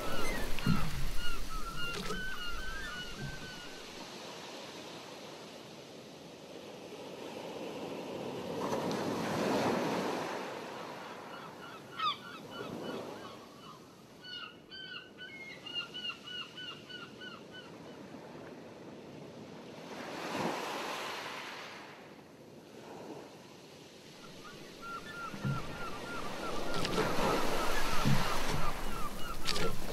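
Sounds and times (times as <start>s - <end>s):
short squawking calls: 0.0s - 3.8s, 24.2s - 29.9s
waves washing: 0.0s - 11.1s, 22.7s - 29.9s.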